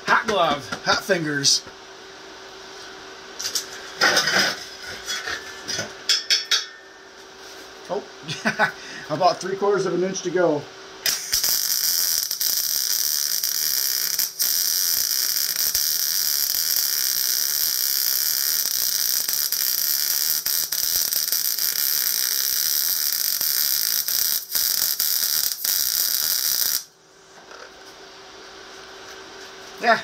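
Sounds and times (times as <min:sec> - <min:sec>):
welding arc hissing: 0:11.0 - 0:26.9.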